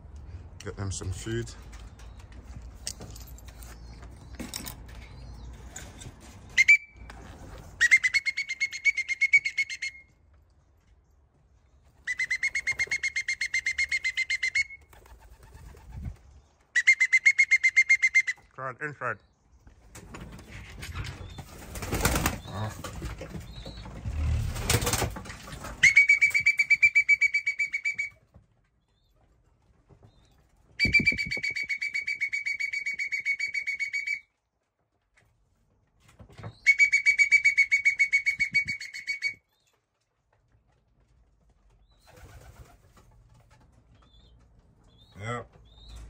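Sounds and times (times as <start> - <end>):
trilled whistle blasts: 6.6 - 7.0, 7.8 - 10.1, 16.8 - 18.4, 25.8 - 28.2, 30.8 - 34.2, 36.7 - 39.4.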